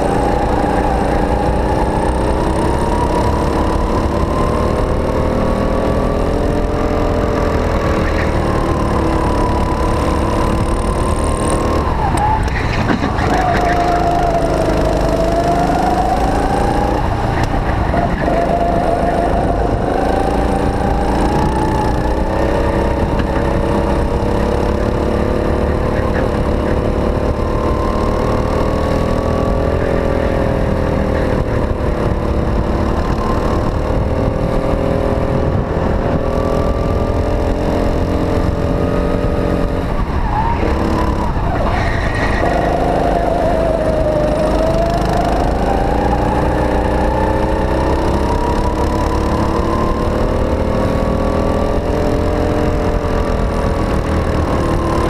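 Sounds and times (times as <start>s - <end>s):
go-kart engine revving: 0.0s - 55.0s.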